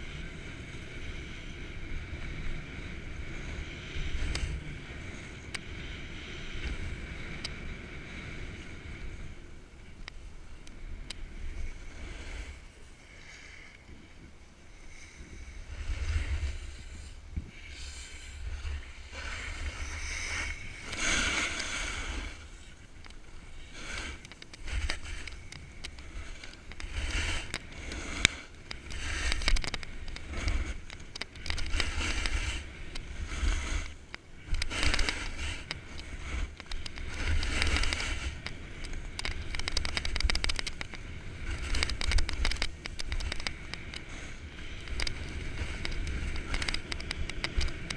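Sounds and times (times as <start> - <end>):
wind rumble on microphone: 0.0 - 47.9
snowboard edges scraping snow: 14.9 - 47.9.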